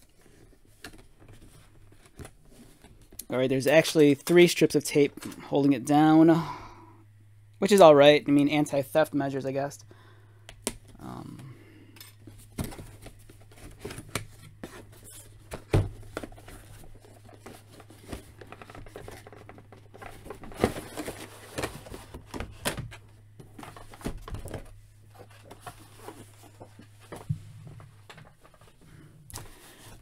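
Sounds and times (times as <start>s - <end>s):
cardboard and plastic rustling: 0.0s - 3.2s, 12.1s - 30.0s
faint low hum: 0.0s - 30.0s.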